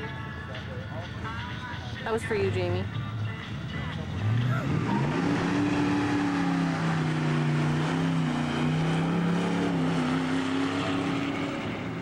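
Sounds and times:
racing engines at full throttle: 0:02.2 - 0:12.0.

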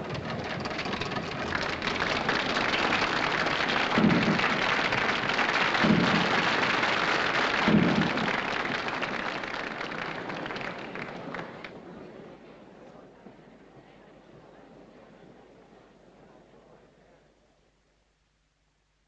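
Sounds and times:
low thumps: 0:00.0 - 0:06.8, 0:07.6 - 0:08.5
audience applauding: 0:00.0 - 0:11.8.

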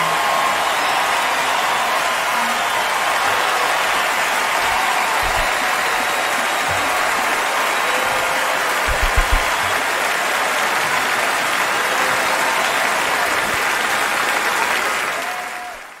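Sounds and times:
audience applauding: 0:00.0 - 0:16.0
low thumps: 0:08.9 - 0:09.6.

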